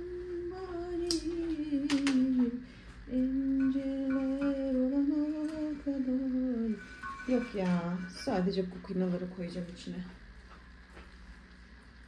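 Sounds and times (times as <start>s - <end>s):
woman humming: 0.0s - 6.8s.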